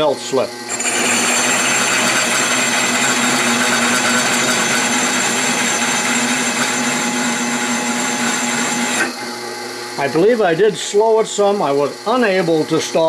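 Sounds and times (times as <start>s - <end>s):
drill press rubbing noise: 0.6s - 10.4s.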